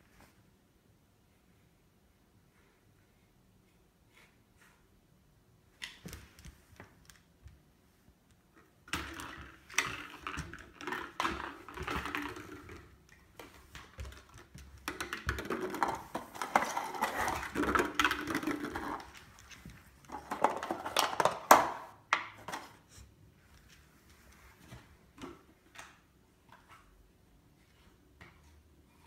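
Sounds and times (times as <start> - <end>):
dog claws clicking on wooden floor: 8.9 - 22.6.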